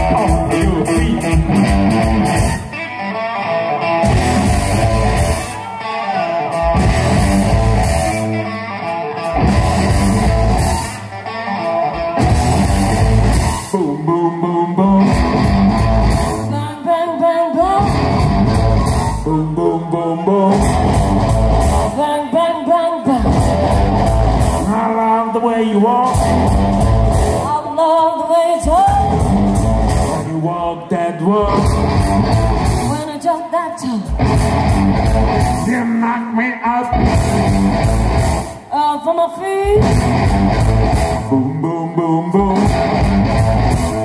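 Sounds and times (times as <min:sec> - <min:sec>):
live rock and roll band: 0:00.0 - 0:44.0
person singing: 0:13.4 - 0:34.2, 0:38.7 - 0:40.0, 0:41.1 - 0:44.0.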